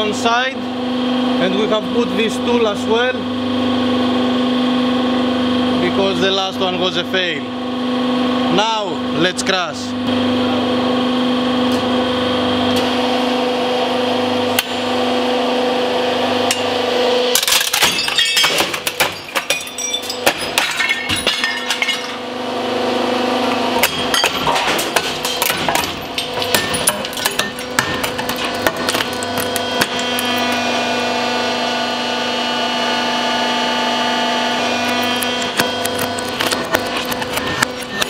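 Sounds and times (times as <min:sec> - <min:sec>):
metal cracking and snapping: 0:17.4 - 0:22.2, 0:23.8 - 0:30.6, 0:34.9 - 0:38.0
hydraulic pump humming: 0:18.0 - 0:38.0.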